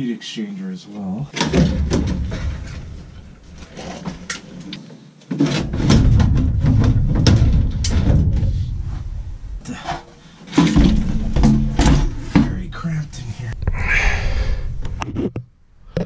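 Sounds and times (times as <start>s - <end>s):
clicks and knocks: 1.4s - 8.7s, 10.5s - 12.6s.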